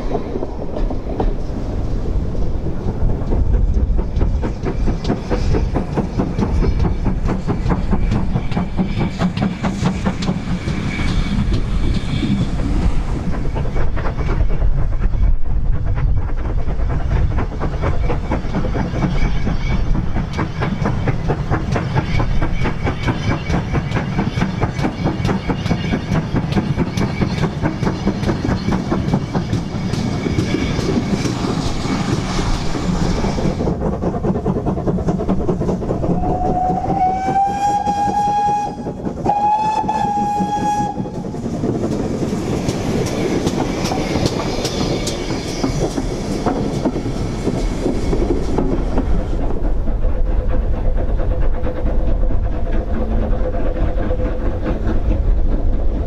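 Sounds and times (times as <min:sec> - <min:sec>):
steam locomotive exhaust beats: 0:00.0 - 0:56.0
train wheels clattering over rail joints: 0:00.0 - 0:56.0
steam whistle blasts: 0:36.2 - 0:41.2.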